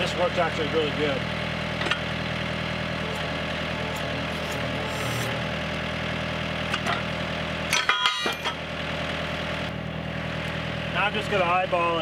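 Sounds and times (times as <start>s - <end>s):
tractor engine idling: 0.0s - 12.0s
metallic clanks ringing: 7.7s - 8.6s.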